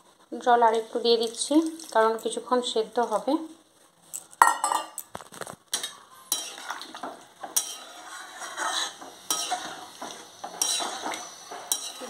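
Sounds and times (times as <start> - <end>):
metal spatula scraping a pan: 5.8 - 12.0.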